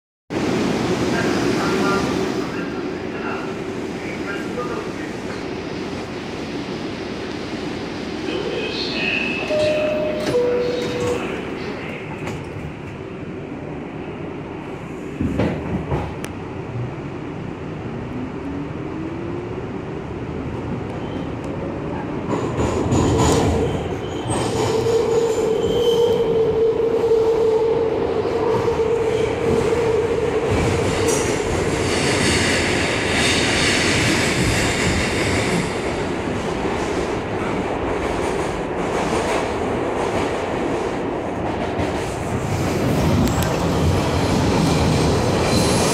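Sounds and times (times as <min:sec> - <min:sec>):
wheels rumbling on rails: 0:15.2 - 0:45.9.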